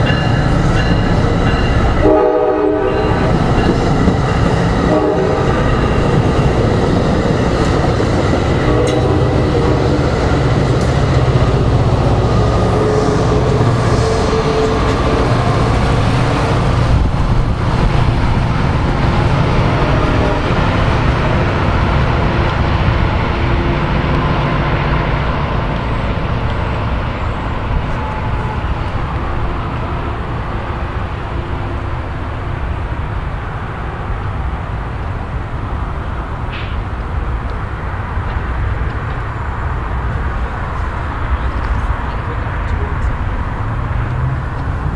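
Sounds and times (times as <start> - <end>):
train engine and wheel noise: 0.0 - 44.9.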